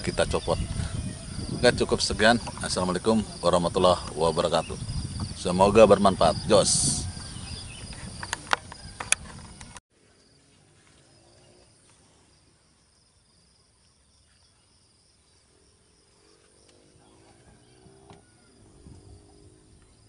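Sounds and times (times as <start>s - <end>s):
insects trilling: 0.0s - 20.0s.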